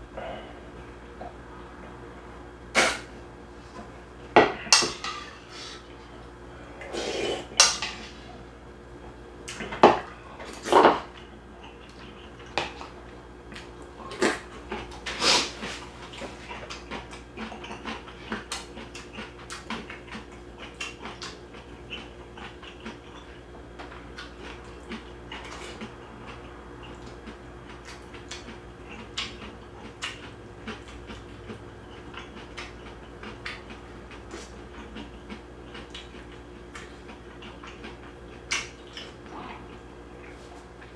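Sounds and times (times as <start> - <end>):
person slurping soup: 6.8 - 7.5
chewing and lip-smacking: 9.4 - 40.9.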